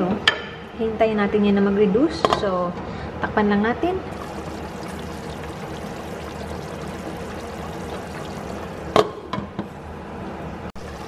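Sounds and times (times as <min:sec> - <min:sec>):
sauce simmering in a pot: 0:04.1 - 0:09.0, 0:10.8 - 0:11.0.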